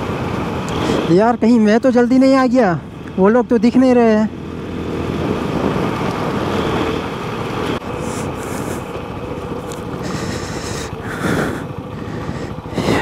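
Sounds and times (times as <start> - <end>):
motorcycle engine and exhaust: 0.0 - 13.0
wind rushing over microphone: 4.3 - 13.0.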